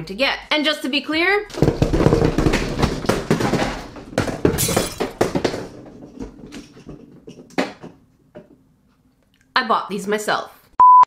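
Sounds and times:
plastic balls clattering on table: 1.5 - 8.6.

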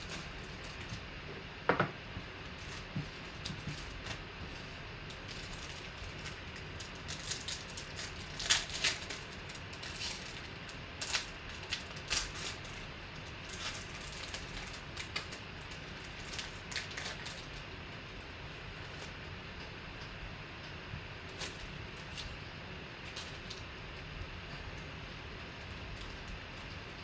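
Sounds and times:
steady low hum: 0.0 - 27.0
foil wrapper crinkling and tearing: 5.1 - 17.7, 21.3 - 22.4.

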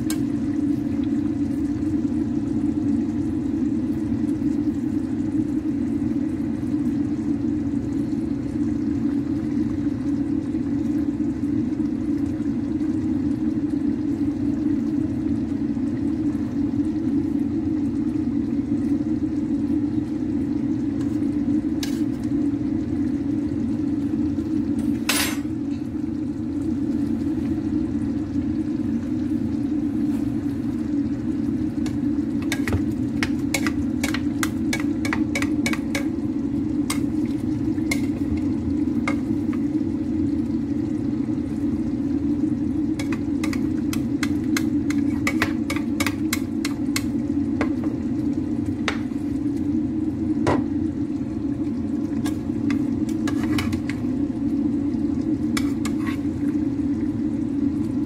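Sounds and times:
spatula scraping frying pan: 32.4 - 36.2, 37.9 - 38.4, 43.0 - 47.1, 52.2 - 54.0, 55.6 - 56.3.

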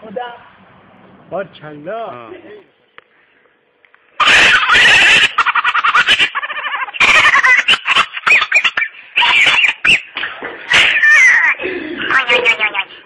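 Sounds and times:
laughter: 4.2 - 10.0
man shrieking and cackling: 4.2 - 10.1, 10.7 - 12.8.

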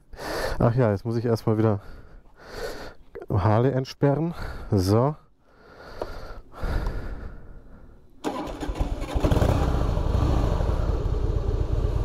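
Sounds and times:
motorcycle engine starting: 8.2 - 12.0
motorcycle engine idling: 8.3 - 12.0.

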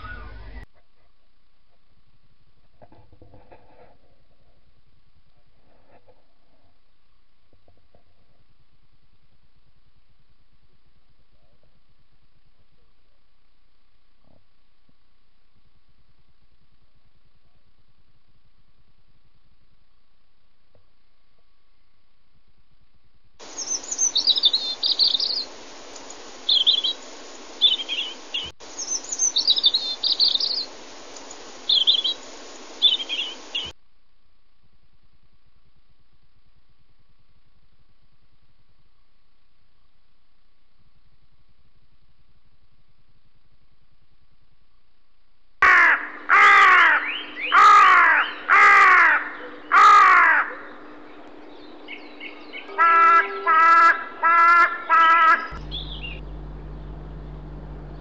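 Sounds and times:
light hiss: 23.4 - 33.8
songbird chirping: 23.4 - 33.8, 46.9 - 58.0
crow cawing: 45.6 - 50.8, 52.7 - 55.6
steady low tone: 55.5 - 58.0.

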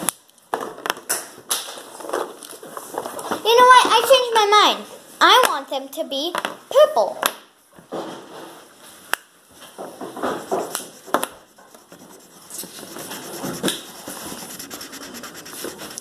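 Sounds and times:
marker scratching on paper: 10.2 - 16.0.

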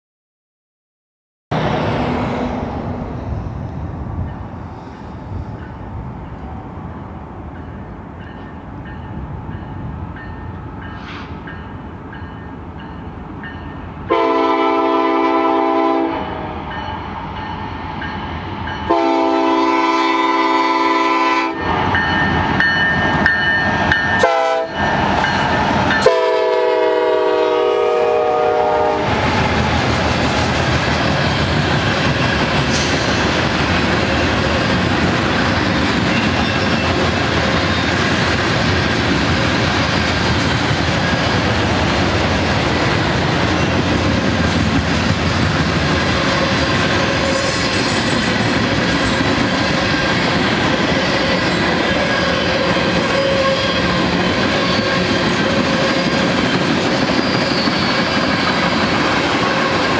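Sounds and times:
freight cars rumbling past: 1.5 - 8.2
locomotive horn blasts: 14.1 - 16.6, 18.9 - 21.6, 24.2 - 24.8, 26.0 - 29.3, 52.0 - 54.0.

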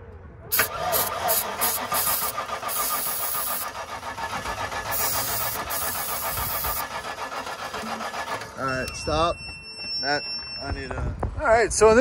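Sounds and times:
hiss: 0.5 - 3.9, 4.8 - 7.1
starter cranking engine: 0.5 - 8.9.

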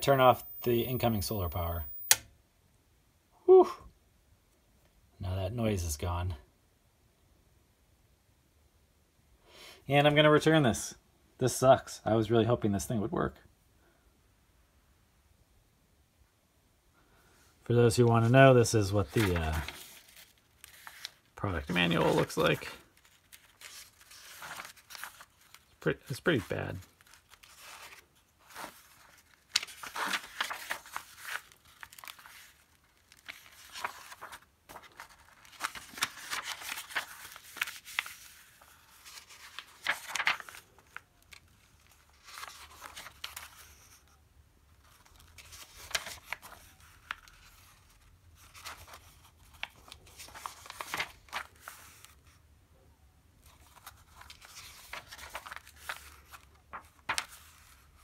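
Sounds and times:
paper pages rustling: 18.9 - 52.4, 53.4 - 58.0.

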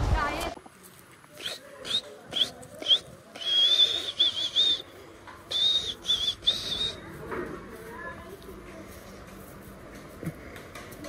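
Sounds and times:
high clear whistling: 1.4 - 4.9, 5.5 - 7.0.

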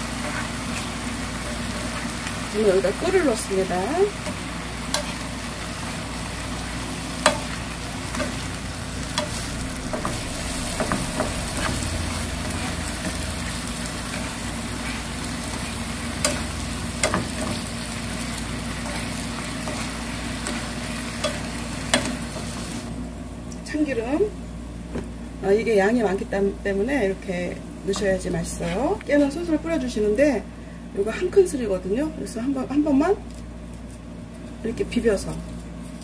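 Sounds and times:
food sizzling in a frying pan: 0.0 - 30.2
utensils tapping on pan: 7.2 - 8.4, 16.2 - 17.6, 18.8 - 22.4.

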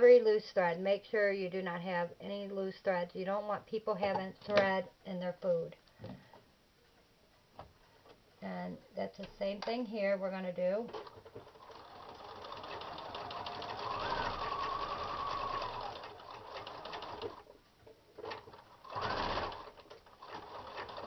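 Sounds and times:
sewing machine stitching: 10.9 - 17.5, 18.2 - 21.0.

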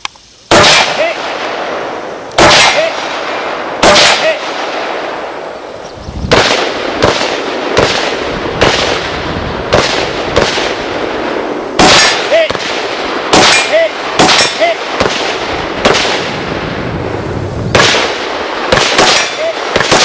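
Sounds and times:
quieter gunshots: 0.5 - 20.0
rifle shots: 0.5 - 20.0.

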